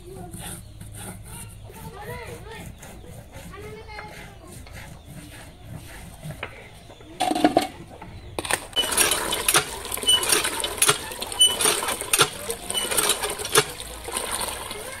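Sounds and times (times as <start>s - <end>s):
hand pump handle clanking: 8.4s - 15.0s
water gushing into metal bucket: 8.5s - 15.0s.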